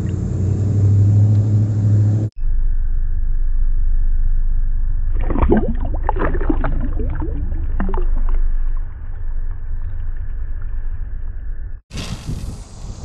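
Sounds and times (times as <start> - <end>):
low rumble: 0.0 - 12.2
bubbling water: 5.1 - 10.7
water splashing and gurgling: 5.1 - 12.5.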